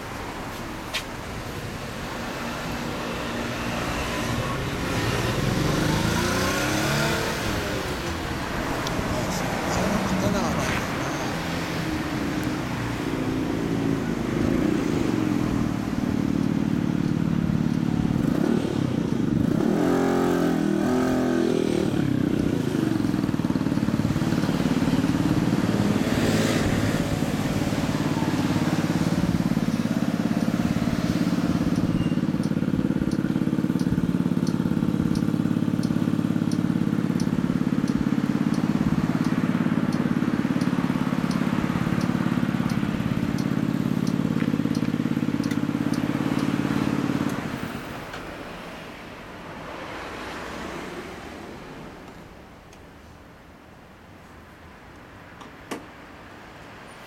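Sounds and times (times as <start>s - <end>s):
motorcycle engine idling and revving: 0.0s - 52.6s
light regular ticking: 31.6s - 47.5s.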